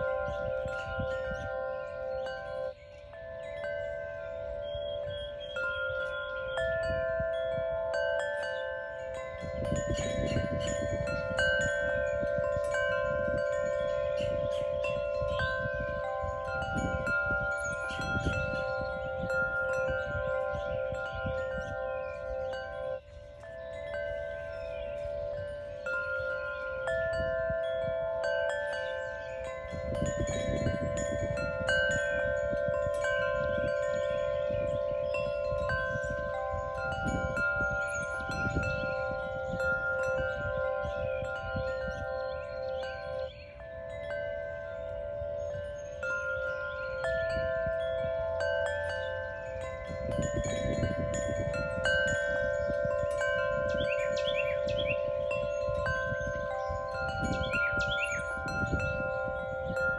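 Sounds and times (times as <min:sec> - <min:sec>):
wind chimes ringing: 0:00.0 - 0:59.9.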